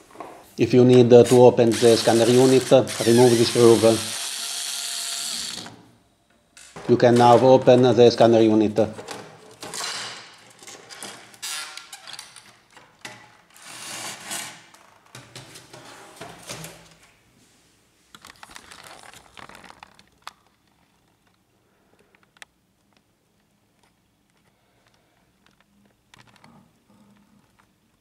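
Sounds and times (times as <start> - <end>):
plastic parts scraping: 18.1 - 21.4.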